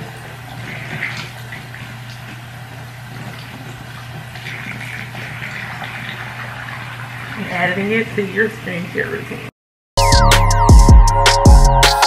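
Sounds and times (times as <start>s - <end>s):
tap water running into sink: 0.0s - 8.2s.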